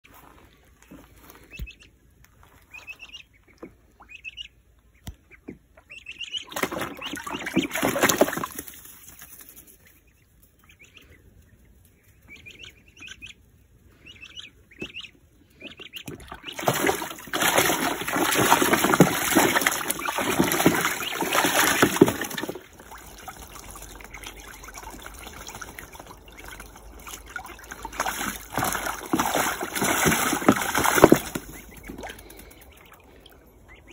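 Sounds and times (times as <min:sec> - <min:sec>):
ducklings peeping: 0:00.2 - 0:33.9
splashing in water: 0:06.4 - 0:09.6, 0:16.1 - 0:33.9.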